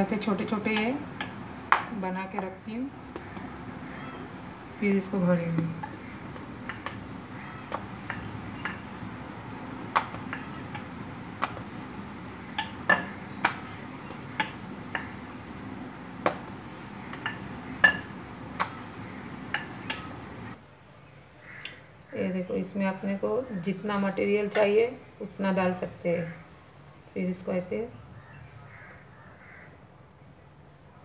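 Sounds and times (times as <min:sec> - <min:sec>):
steady background hiss: 0:00.0 - 0:28.6
rolling pin knocking on board: 0:00.7 - 0:02.5, 0:05.5 - 0:20.4.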